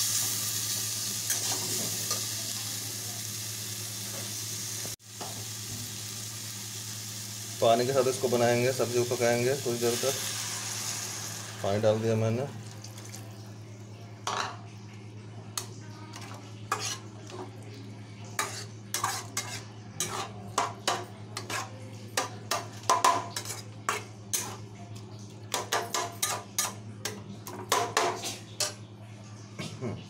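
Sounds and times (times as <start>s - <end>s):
metal spatula scraping a pan: 16.2s - 17.5s, 18.4s - 21.8s, 23.0s - 24.6s.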